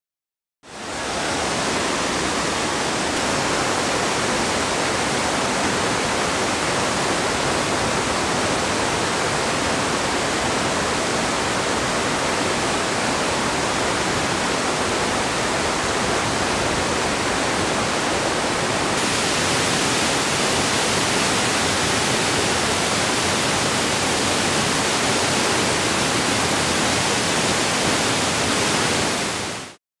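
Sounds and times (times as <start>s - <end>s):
waterfall rushing: 0.7s - 29.8s.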